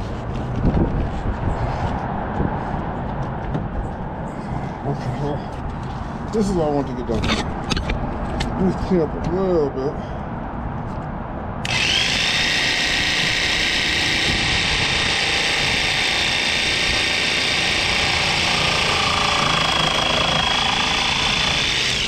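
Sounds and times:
electric power tool whining: 0:11.6 - 0:22.0.

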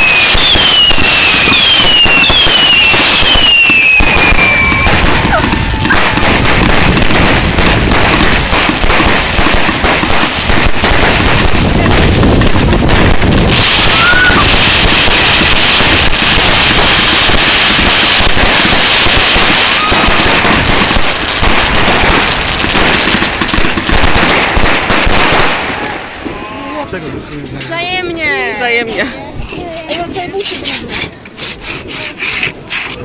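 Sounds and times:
loud crackling hiss: 0:00.0 - 0:25.9
fireworks bangs: 0:00.0 - 0:31.3.

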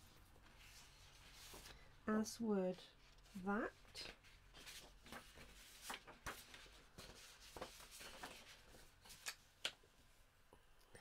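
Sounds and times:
paper rustling: 0:00.1 - 0:01.8, 0:03.0 - 0:09.7.

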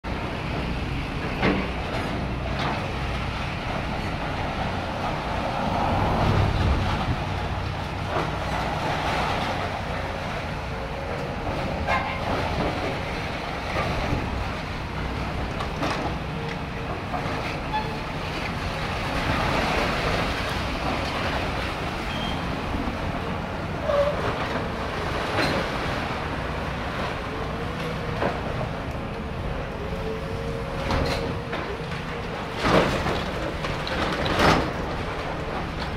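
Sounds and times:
diesel engine rumble: 0:00.0 - 0:35.9.

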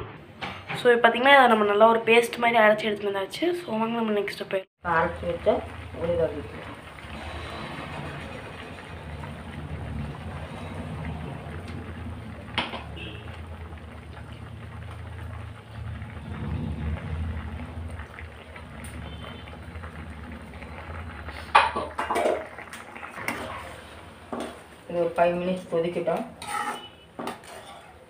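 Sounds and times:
pan simmering with bubbling hiss: 0:04.8 - 0:28.0.

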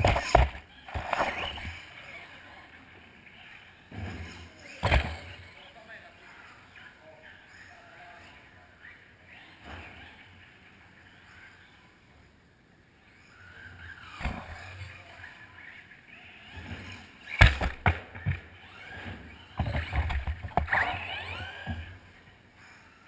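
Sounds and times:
toy cars knocking into things: 0:00.0 - 0:01.6, 0:17.3 - 0:18.4
toy car motor whine: 0:13.1 - 0:22.9.

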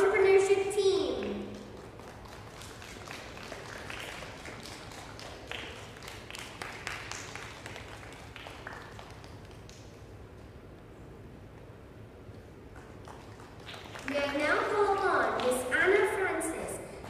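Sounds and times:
light scattered clapping: 0:01.2 - 0:10.6, 0:12.7 - 0:15.7.

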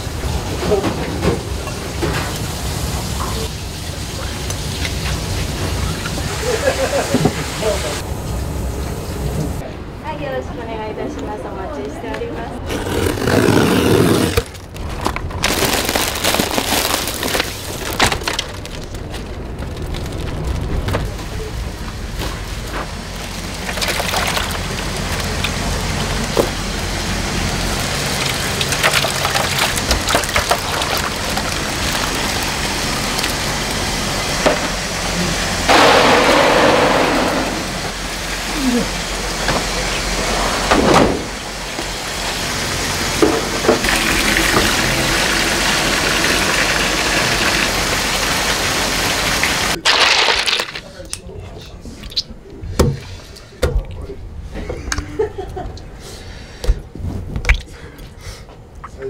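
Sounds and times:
plastic bags crinkling: 0:14.0 - 0:20.8
water pouring: 0:23.1 - 0:26.3, 0:27.4 - 0:34.3, 0:43.8 - 0:50.8
water sloshing in plastic tubs: 0:28.0 - 0:33.4.

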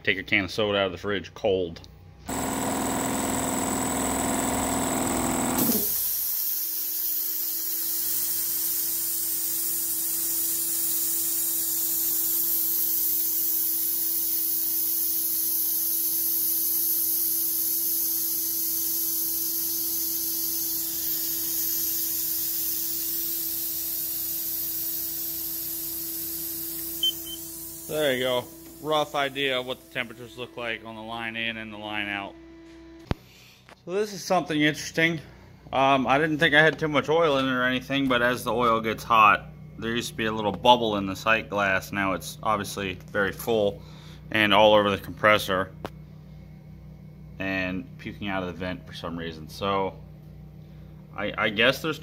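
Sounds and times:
air compressor pump running: 0:02.2 - 0:33.8, 0:43.6 - 0:44.4
high hiss of air: 0:05.6 - 0:30.6.

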